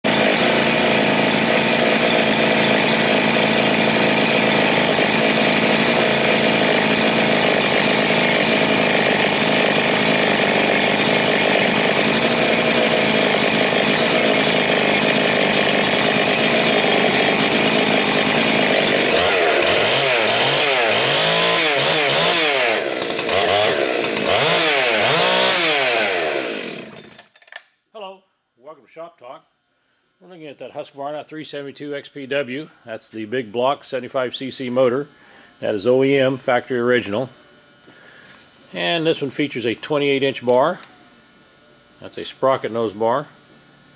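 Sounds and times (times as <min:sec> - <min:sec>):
chainsaw engine revving: 0:00.1 - 0:27.6.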